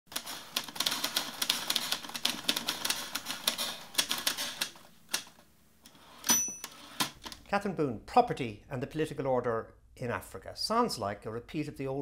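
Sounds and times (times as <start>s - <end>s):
typewriter keys clacking: 0.1s - 5.4s.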